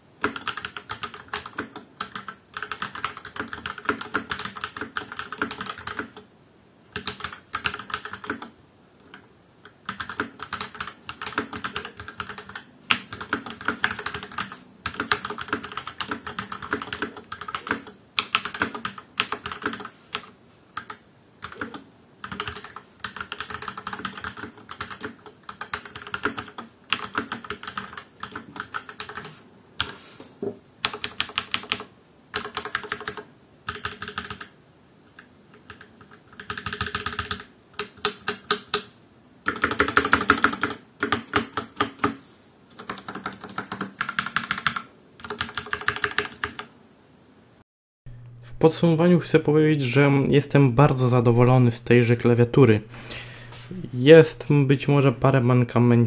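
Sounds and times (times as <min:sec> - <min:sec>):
mechanical keyboard typing: 0:00.2 - 0:06.2, 0:06.9 - 0:29.9, 0:30.8 - 0:34.6, 0:35.5 - 0:46.7.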